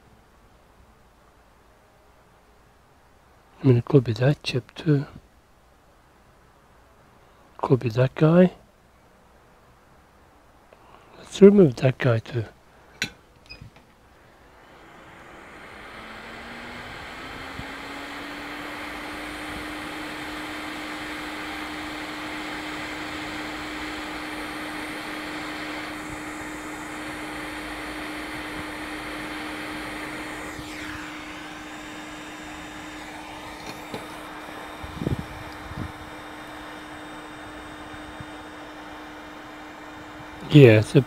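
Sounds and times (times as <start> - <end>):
fan hum: 0.0 - 41.0
hot air station hissing: 14.2 - 41.0.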